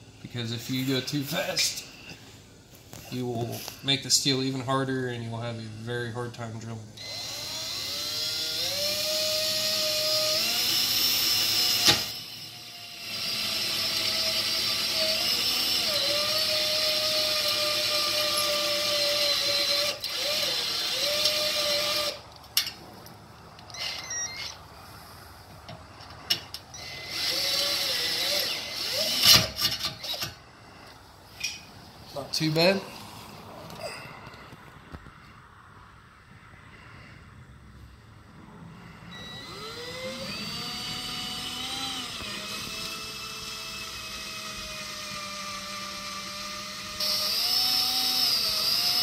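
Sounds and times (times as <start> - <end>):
cordless drill boring into steel: 7.0 - 22.2, 23.7 - 24.6, 26.2 - 30.4, 39.1 - 49.0
drill clicks: 7.0 - 22.8, 23.6 - 24.6, 25.7 - 30.4, 39.1 - 49.0.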